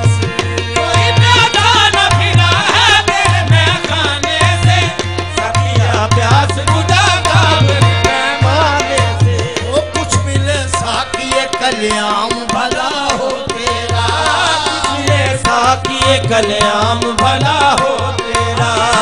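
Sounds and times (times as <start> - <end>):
tabla drumming: 0.0 - 19.0.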